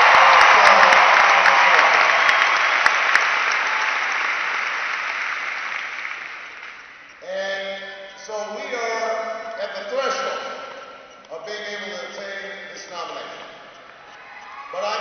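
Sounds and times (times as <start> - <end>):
crowd applauding: 0.0 - 7.2, 14.0 - 15.0.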